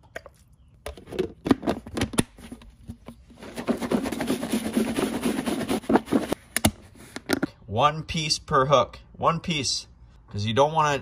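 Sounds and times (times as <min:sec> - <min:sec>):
corn kernels shaken in tub: 0:03.4 - 0:06.4.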